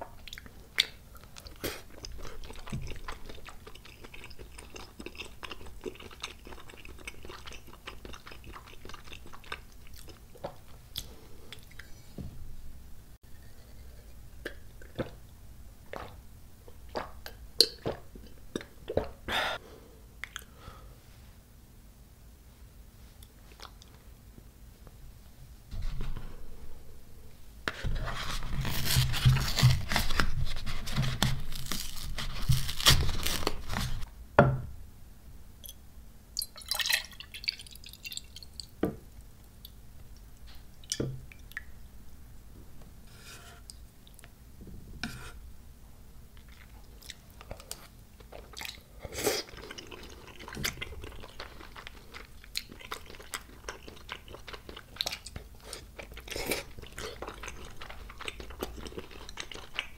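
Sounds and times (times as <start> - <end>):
chewing: 0.1 - 12.0, 46.4 - 59.9.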